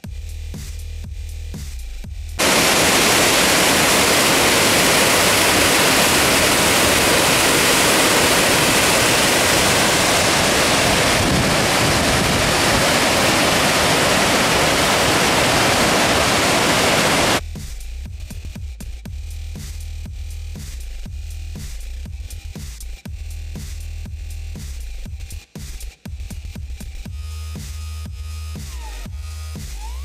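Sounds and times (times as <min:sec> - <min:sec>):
creek water rushing: 0:02.4 - 0:17.4.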